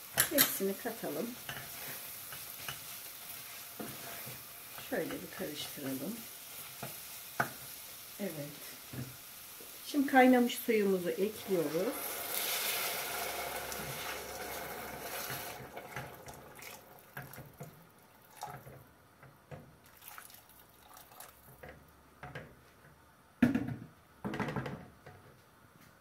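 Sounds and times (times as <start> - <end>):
wooden spoon scraping pot: 1.4 - 6.0, 11.4 - 17.8
water pouring and splashing: 11.4 - 18.8, 19.8 - 21.6.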